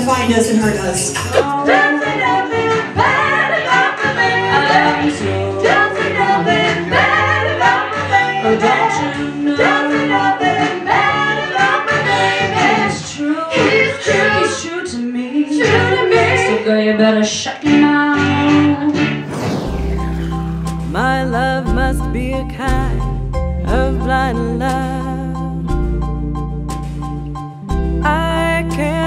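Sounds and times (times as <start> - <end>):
female vocal trio singing harmony: 1.4 - 19.1
backing music with bass and beat: 19.9 - 28.1.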